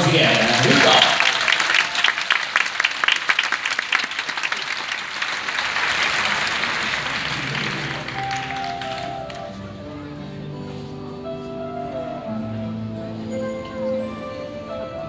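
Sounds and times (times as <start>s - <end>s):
audience applauding: 0.0s - 9.8s
music: 6.2s - 15.0s.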